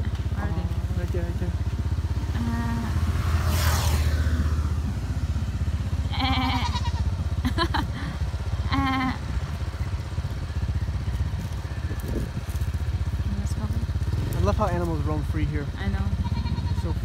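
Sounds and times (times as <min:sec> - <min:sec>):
engine running: 0:00.0 - 0:17.0
goats bleating: 0:06.0 - 0:07.2, 0:16.1 - 0:17.0.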